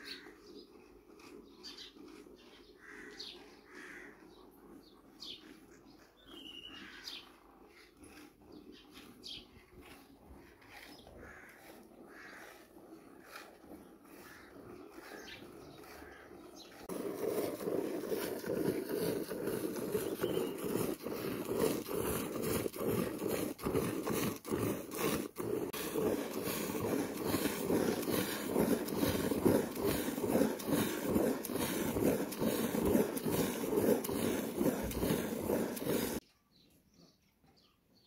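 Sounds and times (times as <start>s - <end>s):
milk squirting into bucket: 12.0s - 36.2s.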